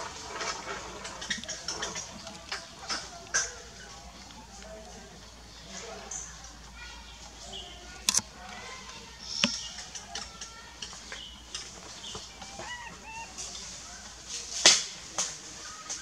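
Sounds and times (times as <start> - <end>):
chirping animal calls: 11.1 - 14.1.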